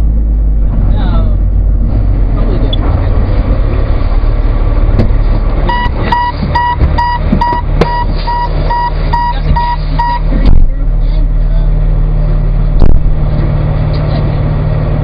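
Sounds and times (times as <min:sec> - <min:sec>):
truck engine rumbling: 0:00.0 - 0:15.0
reversing alarm beeping: 0:05.7 - 0:10.3.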